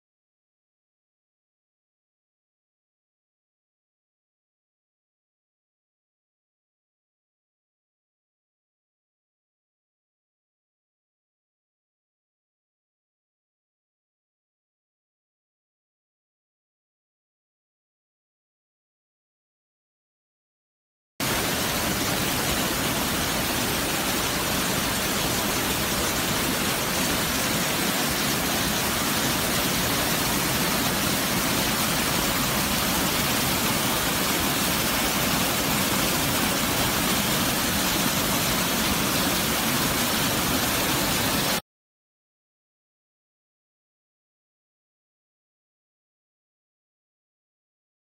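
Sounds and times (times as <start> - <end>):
waterfall rushing: 21.2 - 41.6.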